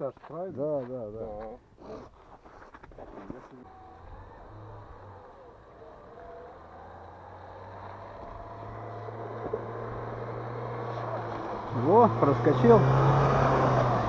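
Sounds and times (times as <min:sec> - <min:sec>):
car engine running: 0:02.9 - 0:14.0.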